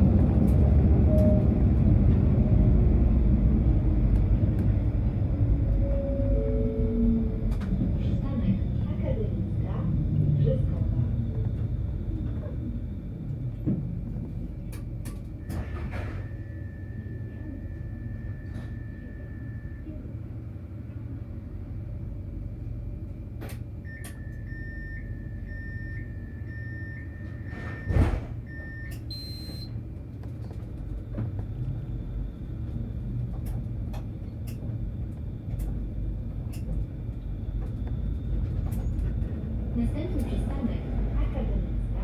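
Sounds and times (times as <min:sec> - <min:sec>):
tram running rumble: 0:00.0 - 0:42.0
electronic door warning beeps: 0:23.8 - 0:29.8.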